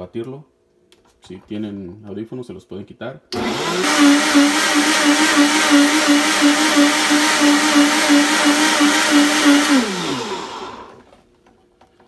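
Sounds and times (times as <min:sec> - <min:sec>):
blender motor running: 0:03.4 - 0:11.0.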